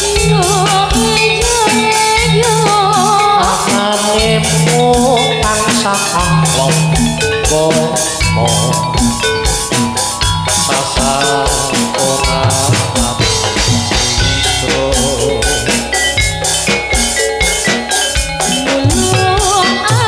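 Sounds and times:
gamelan drums: 0.0s - 20.0s.

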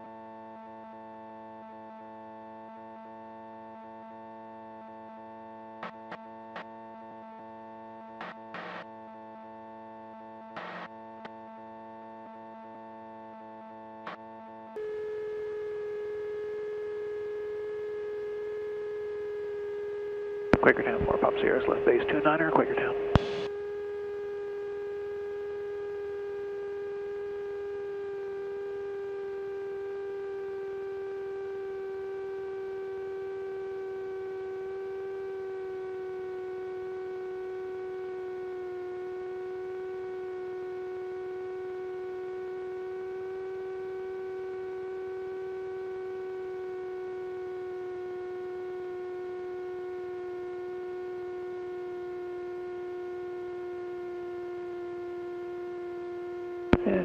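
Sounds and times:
aircraft engine and propeller droning: 20.0s - 26.9s.

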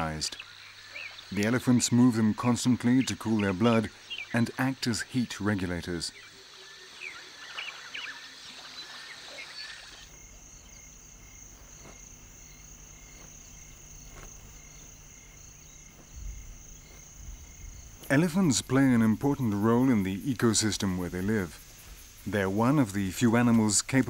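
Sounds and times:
birds chirping: 0.0s - 24.0s
insects trilling: 0.0s - 24.0s
soft low rumble: 10.2s - 18.2s.

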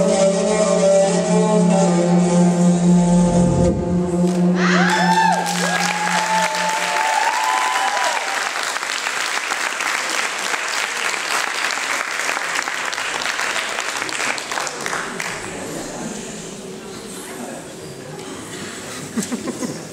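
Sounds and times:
audience applauding: 4.3s - 15.7s
high cheering calls: 4.6s - 8.8s.

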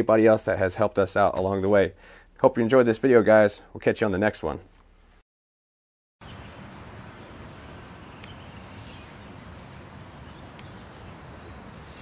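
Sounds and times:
small bird chirping: 6.2s - 12.0s.

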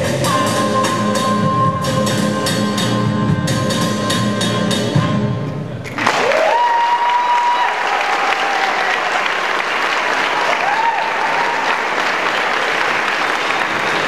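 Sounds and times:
audience applauding: 5.9s - 14.0s
drawn-out cheers: 6.1s - 9.3s, 10.4s - 12.0s.

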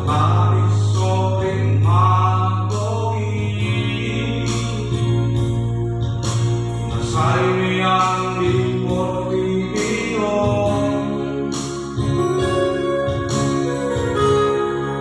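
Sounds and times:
man singing: 0.0s - 5.8s, 6.8s - 12.2s
keyboard chords and bass: 0.0s - 15.0s.

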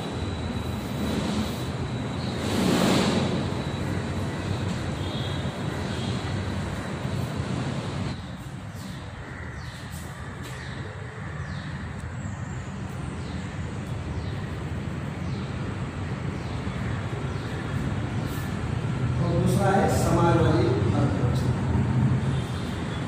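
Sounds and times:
low mechanical rumble: 0.0s - 8.4s.

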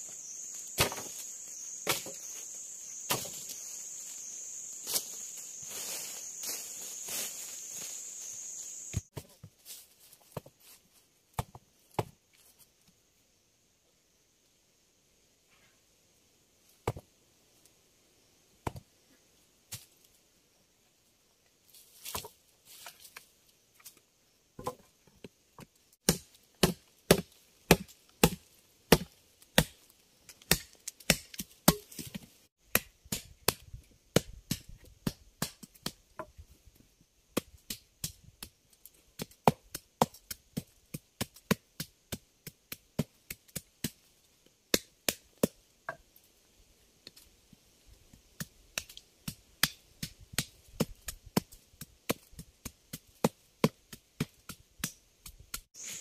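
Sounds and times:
machete chopping wooden sticks: 0.6s - 1.2s, 1.8s - 2.4s, 3.0s - 3.6s, 26.0s - 36.3s.

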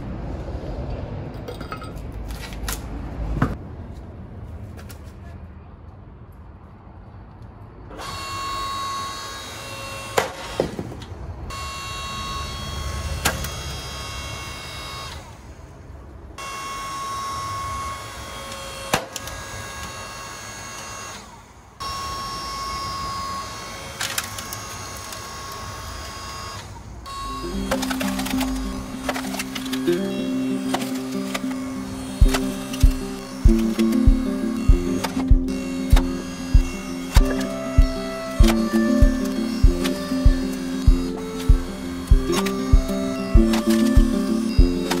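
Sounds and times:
log splitter motor whine: 16.4s - 45.0s.

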